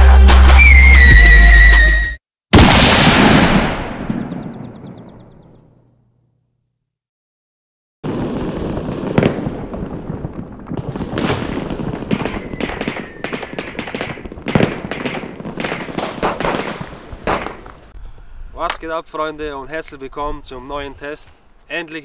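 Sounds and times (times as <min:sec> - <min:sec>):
fireworks sharp bangs: 0:02.6 - 0:05.2, 0:08.0 - 0:18.0
fireworks crackle and rumble: 0:08.0 - 0:18.0.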